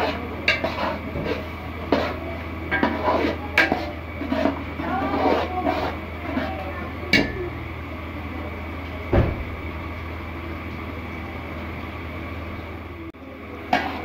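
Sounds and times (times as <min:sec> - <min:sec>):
low hum: 0:04.0 - 0:13.1.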